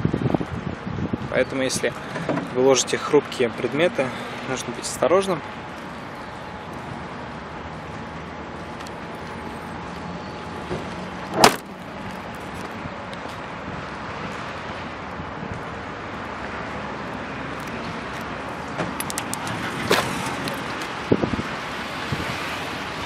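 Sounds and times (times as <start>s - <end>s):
outdoor background noise: 0.0s - 23.0s
car trunk lid slamming: 10.7s - 11.7s
car door latch click: 11.4s - 11.6s.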